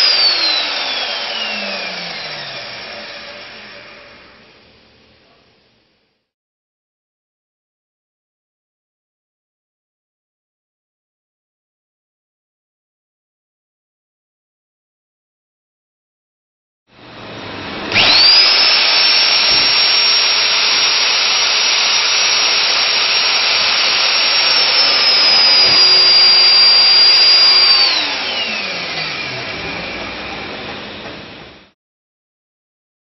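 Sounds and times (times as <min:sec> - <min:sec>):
magnetic drill motor whine: 0:00.0 - 0:04.3, 0:17.1 - 0:31.6.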